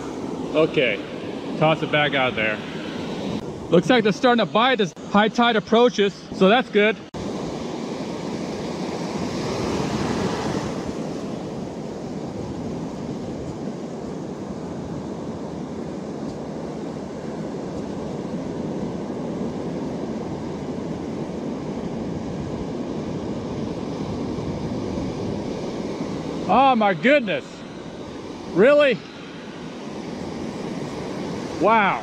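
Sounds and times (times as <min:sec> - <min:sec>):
waves breaking: 0:00.0 - 0:32.0
wind buffeting microphone: 0:07.2 - 0:26.5.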